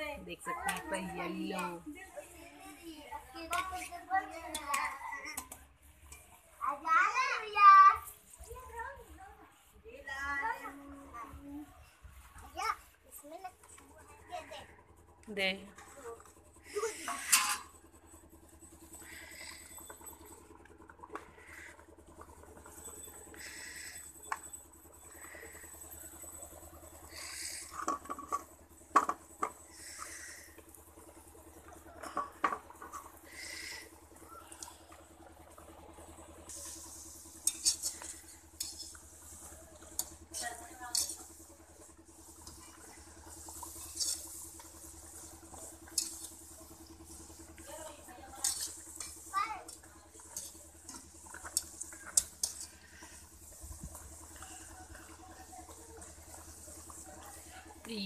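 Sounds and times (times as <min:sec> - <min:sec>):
wire skimmer scraping pan: 0:15.4 - 0:17.9, 0:18.7 - 0:35.7, 0:36.4 - 0:58.0
hot oil sizzling: 0:36.5 - 0:58.0.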